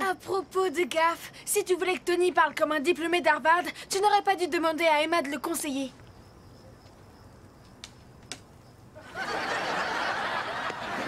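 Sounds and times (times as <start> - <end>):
audience laughter: 9.0 - 11.0.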